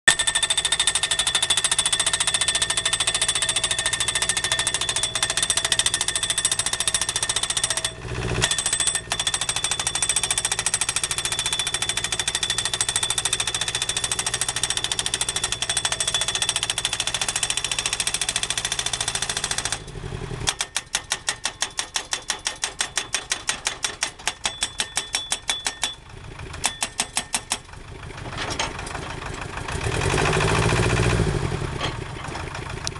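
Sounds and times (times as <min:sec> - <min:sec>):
pile driver hammering metal post: 0:00.1 - 0:19.9, 0:20.5 - 0:29.0
machine engine running: 0:00.2 - 0:20.7, 0:27.4 - 0:32.9.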